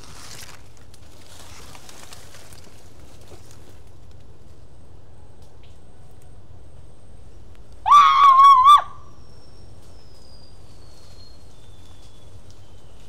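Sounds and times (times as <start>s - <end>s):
high-pitched scream: 7.8s - 9.1s.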